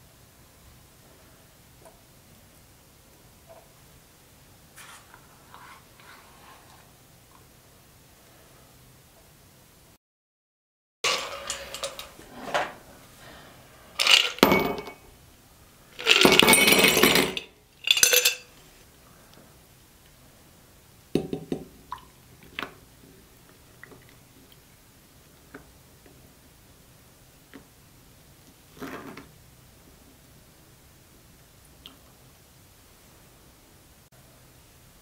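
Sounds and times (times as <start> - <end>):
ice cubes clinking into glass: 11.1 - 12.2, 14.0 - 15.0, 16.0 - 18.5.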